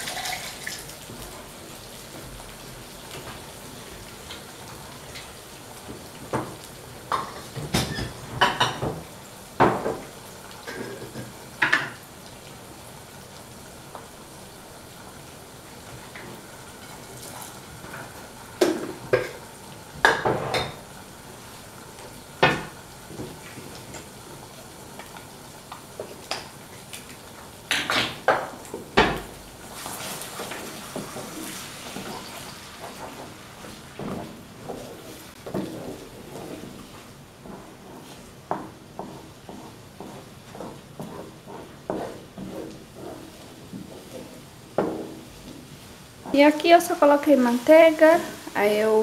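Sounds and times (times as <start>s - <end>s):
dishes and utensils clinking: 7.1s - 8.9s
wooden spoon scraping a pan: 29.7s - 49.0s.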